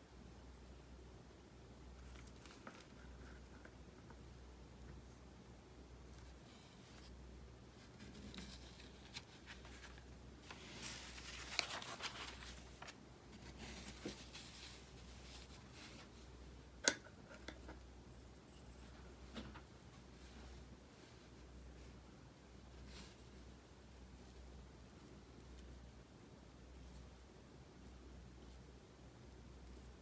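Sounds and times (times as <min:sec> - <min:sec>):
paper rustling and scraping on cloth: 0:07.8 - 0:16.2.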